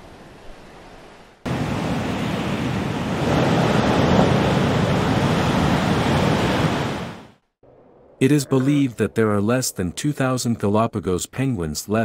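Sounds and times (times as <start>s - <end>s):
waves breaking over rocks: 1.5s - 7.3s.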